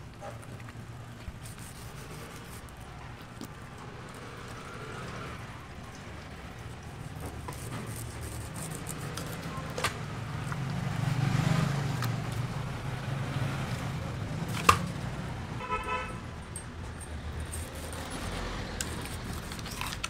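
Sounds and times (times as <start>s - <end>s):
vehicle engine rumble: 0.0s - 20.0s
car horn toot: 15.6s - 16.2s.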